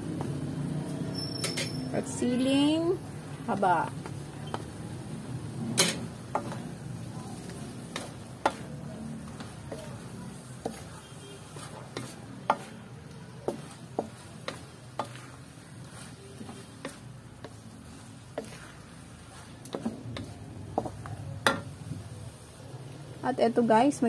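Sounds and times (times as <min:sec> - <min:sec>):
spatula scraping metal wok: 0:03.2 - 0:21.9
spatula knocking on pan: 0:07.9 - 0:10.0, 0:10.6 - 0:12.8, 0:13.4 - 0:15.4, 0:19.6 - 0:21.8.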